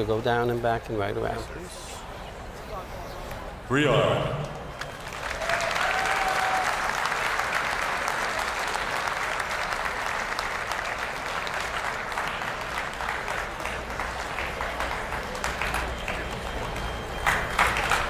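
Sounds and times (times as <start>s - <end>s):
audience applauding: 4.7s - 18.0s.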